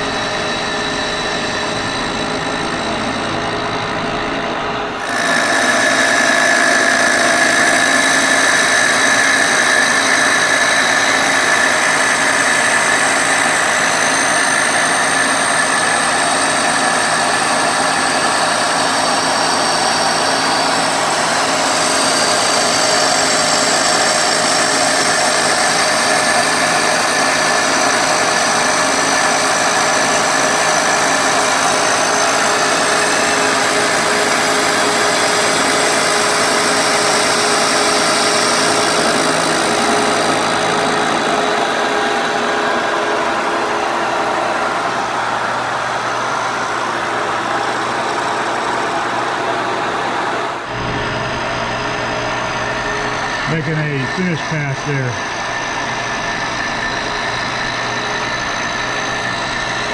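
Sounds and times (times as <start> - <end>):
high ringing tones: 4.9 - 24.8
milling machine cutting metal: 4.9 - 59.9.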